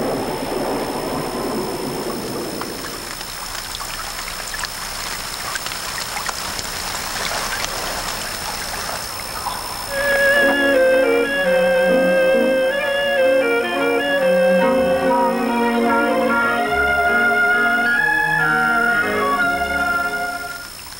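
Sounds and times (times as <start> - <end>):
stream splashing over stones: 0.0 - 10.7
water rushing: 0.0 - 20.9.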